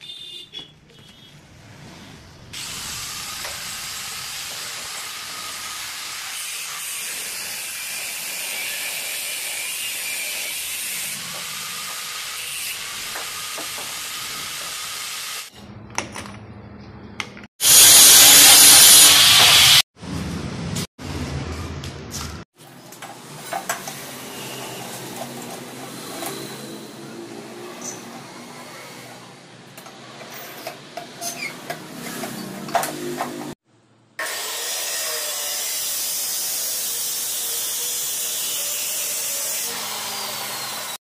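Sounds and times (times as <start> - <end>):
drill cutting steel: 2.6 - 15.5, 17.6 - 19.9, 23.4 - 29.4, 34.2 - 41.0.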